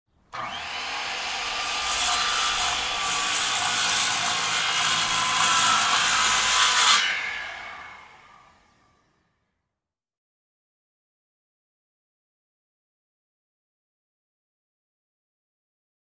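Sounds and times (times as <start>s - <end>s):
circular saw cutting: 0.3s - 9.2s.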